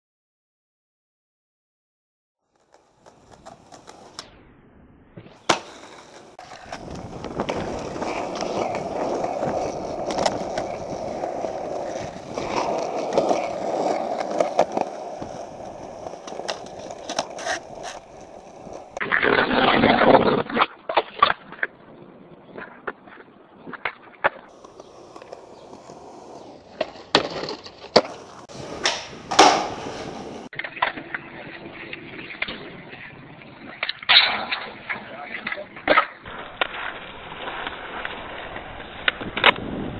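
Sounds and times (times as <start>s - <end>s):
skateboard wheels rolling on concrete: 2.4s - 39.9s
skateboard clacks: 2.5s - 4.2s, 5.3s - 21.8s, 22.5s - 31.4s.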